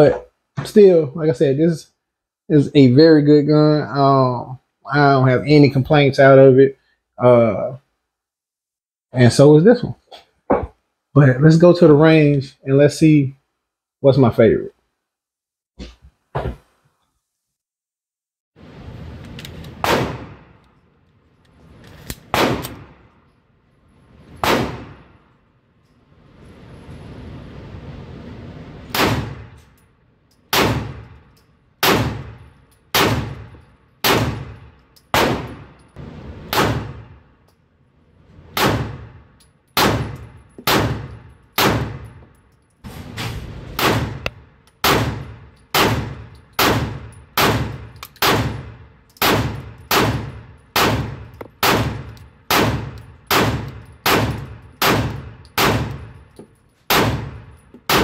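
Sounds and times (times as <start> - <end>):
handgun shots echoing: 19.8 - 20.6, 22.2 - 23.1, 24.4 - 25.2, 31.8 - 35.9, 38.6 - 42.2, 43.8 - 56.3, 56.9 - 58.0.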